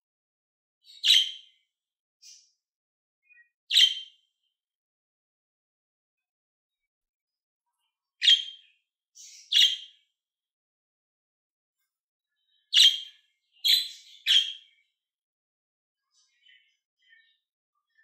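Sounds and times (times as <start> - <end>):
budgerigar chirping: 0.9 - 1.5, 3.7 - 4.1, 8.2 - 9.9, 12.7 - 14.7.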